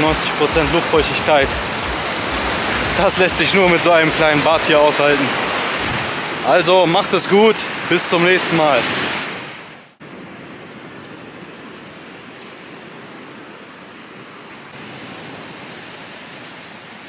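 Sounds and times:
surf: 0.0 - 10.0
wind: 0.0 - 17.0.

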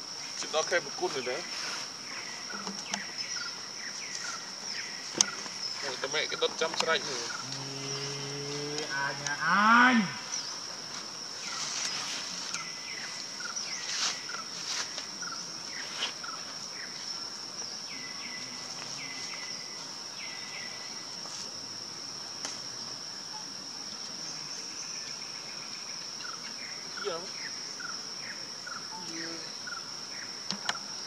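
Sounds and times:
high-pitched insect drone: 0.0 - 31.0.

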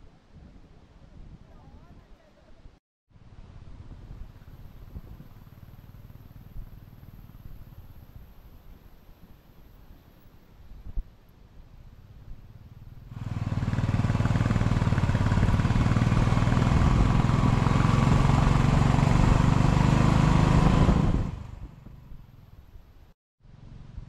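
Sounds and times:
road and wind noise: 3.1 - 24.0
vehicle engine under load: 12.7 - 22.6.

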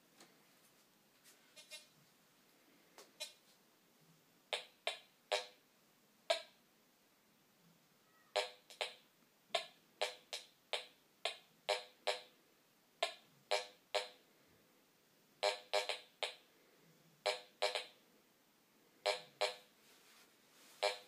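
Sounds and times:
metal detector beeps: 1.6 - 1.9, 3.2 - 3.4.

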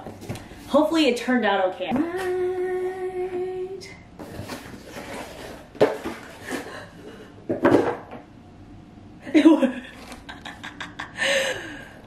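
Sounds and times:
woman humming: 2.0 - 4.0.

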